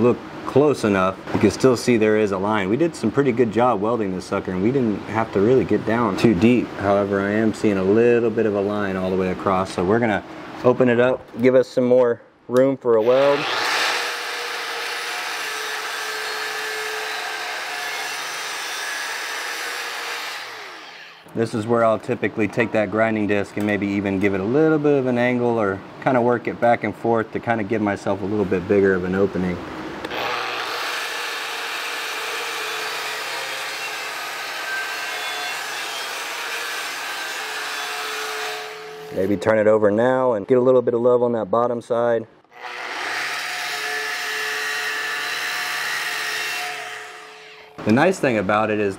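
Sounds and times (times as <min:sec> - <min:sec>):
angle grinder grinding steel: 0:13.0 - 0:21.3, 0:30.1 - 0:39.4, 0:42.5 - 0:47.8.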